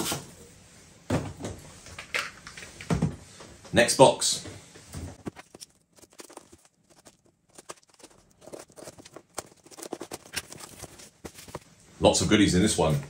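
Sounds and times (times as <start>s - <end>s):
parcel packaging rustling: 5.1s - 11.8s.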